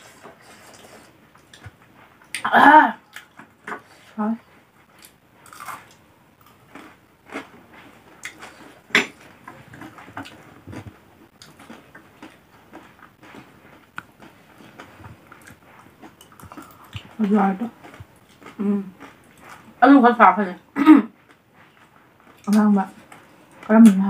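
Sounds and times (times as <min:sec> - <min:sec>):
chewing crunchy food: 0:04.9 - 0:19.8, 0:21.2 - 0:24.0.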